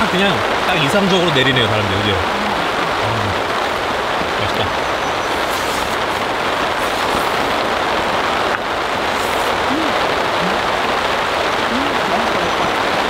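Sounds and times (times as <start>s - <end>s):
heavy rain on a tarp: 0.0s - 13.0s.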